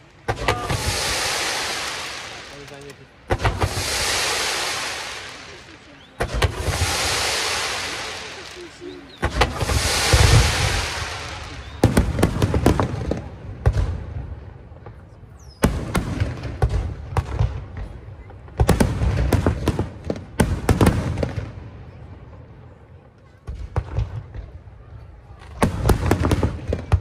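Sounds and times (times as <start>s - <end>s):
firework shells bursting: 0.2s - 13.3s.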